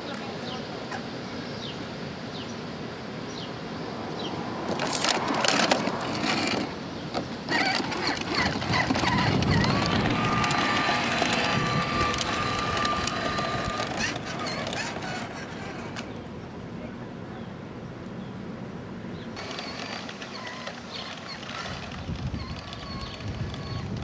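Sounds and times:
hard wheels crunching over grit: 4.5s - 16.4s, 19.4s - 24.0s.

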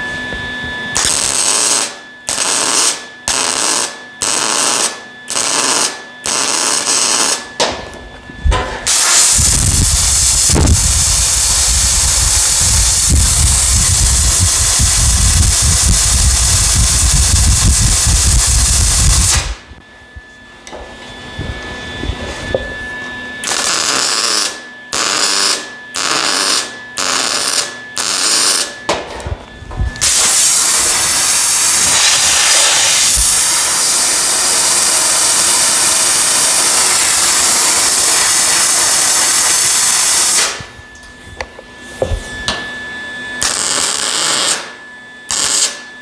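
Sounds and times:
welder crackling: 1.0s - 7.7s, 8.8s - 19.6s, 23.4s - 28.8s, 30.0s - 40.6s, 43.4s - 45.8s.

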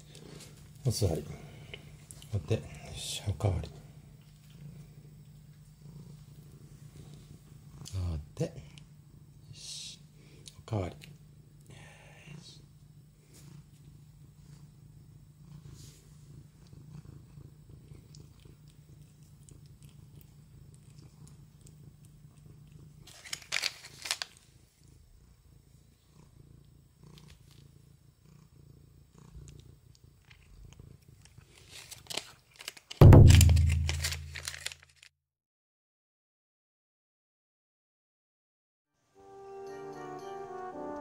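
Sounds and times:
cat purring: 0.0s - 10.4s, 11.0s - 23.3s, 24.5s - 32.0s.

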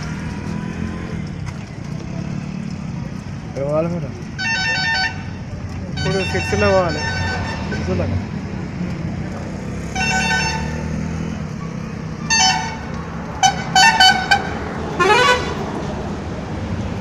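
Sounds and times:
traffic rumble: 0.0s - 17.0s
vehicle horns honking: 4.4s - 8.1s, 9.8s - 11.2s, 12.2s - 15.7s.

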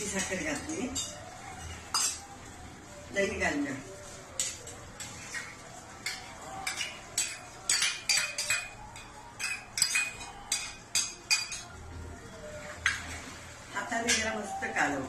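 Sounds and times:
spoon scraping steel bowls: 0.0s - 2.3s, 4.3s - 11.8s.

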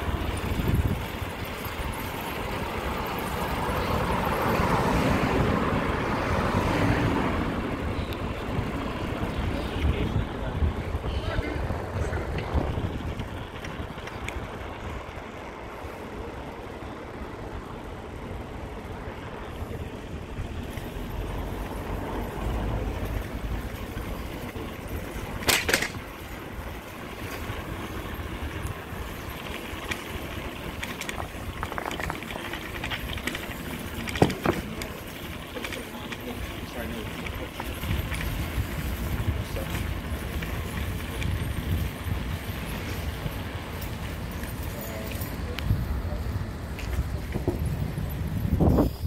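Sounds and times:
wind rumble on microphone: 0.0s - 15.8s, 37.0s - 49.0s
road noise: 0.0s - 49.0s.

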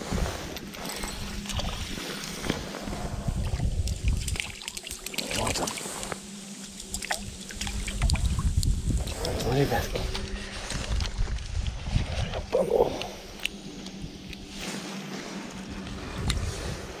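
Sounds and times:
water lapping and trickling: 0.0s - 17.0s
gusty low rumble: 1.2s - 4.5s, 7.3s - 17.0s.

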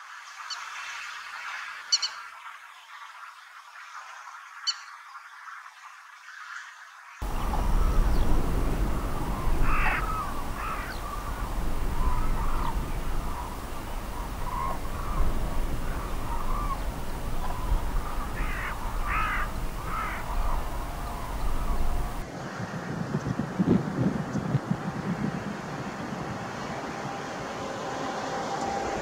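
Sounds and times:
lapwing calling: 7.2s - 22.2s
low background rumble: 7.2s - 22.2s.

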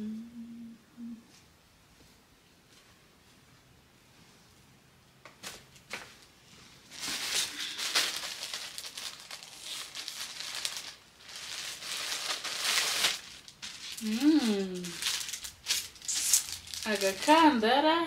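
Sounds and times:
plastic bag crinkling: 6.8s - 17.6s.

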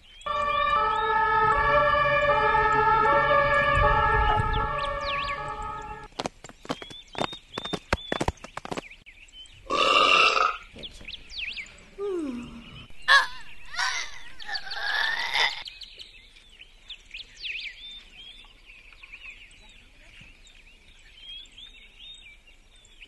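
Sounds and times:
birds chirping: 0.0s - 23.0s
falling glide sound effect: 0.3s - 6.1s
burp-like pitched sounds: 9.7s - 10.7s.

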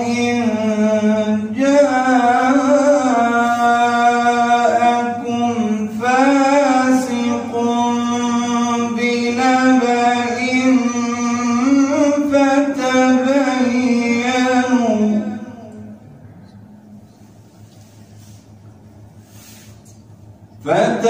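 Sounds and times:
man chanting melodic recitation: 0.0s - 16.0s, 20.6s - 21.0s.

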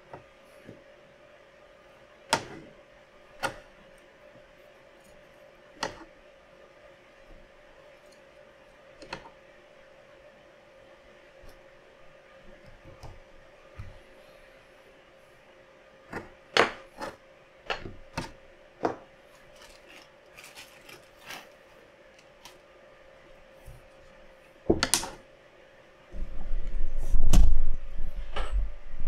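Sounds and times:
low rumble: 26.2s - 29.0s.

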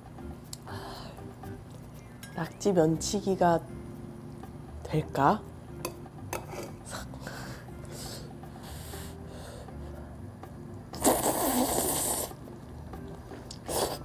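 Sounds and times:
loud slurp: 11.0s - 12.4s, 13.6s - 14.0s.

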